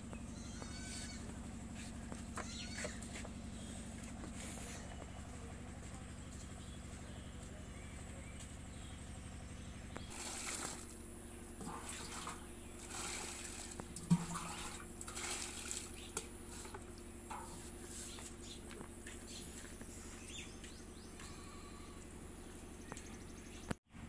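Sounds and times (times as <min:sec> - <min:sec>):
steady low hum: 0:00.0 - 0:24.0
water pouring into bucket: 0:10.1 - 0:11.0, 0:11.6 - 0:16.8.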